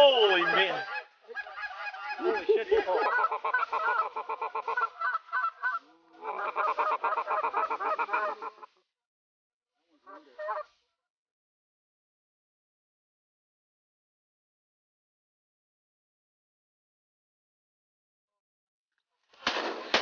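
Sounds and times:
geese honking and clucking: 0.0 - 8.7, 10.0 - 10.8.

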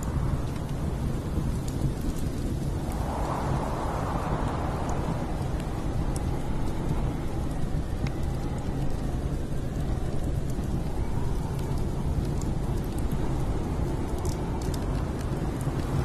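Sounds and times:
deep wind rumble: 0.0 - 16.0
log fire crackling: 0.0 - 16.0.

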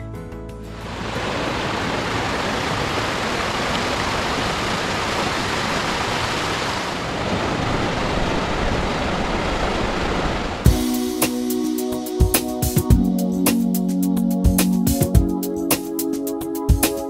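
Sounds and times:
rushing water: 0.7 - 11.3.

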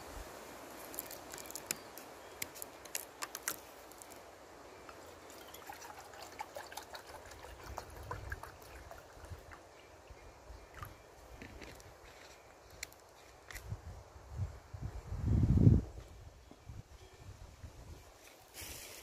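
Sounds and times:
water pouring into a pot: 4.9 - 9.6.

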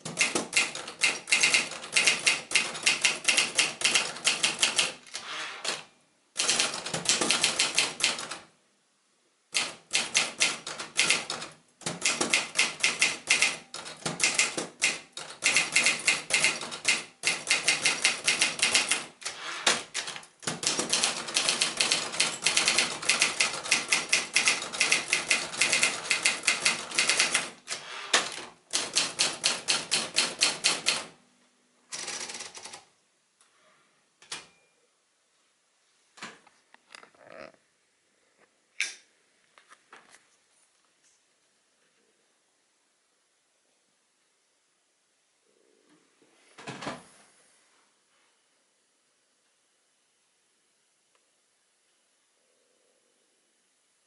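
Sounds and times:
manual typewriter key strikes: 0.0 - 5.0, 6.4 - 8.4, 9.6 - 27.6, 28.2 - 31.2.

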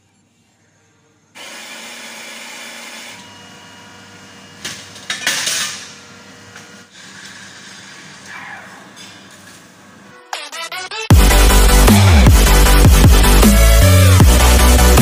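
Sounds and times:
coffee grinder running: 1.4 - 3.8.

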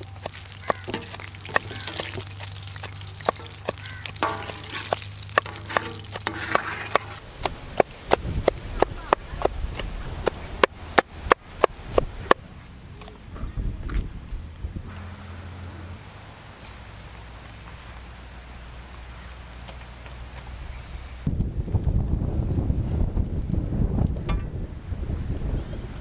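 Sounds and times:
sharp knocks of food kneading: 0.0 - 12.4.

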